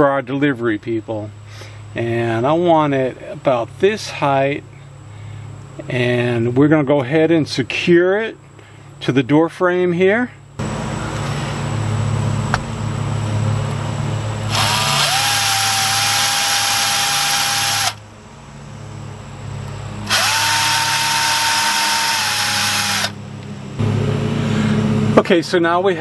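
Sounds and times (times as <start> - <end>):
low steady hum: 9.8 - 26.0
cordless drill boring into wood: 14.5 - 18.0, 20.0 - 23.2.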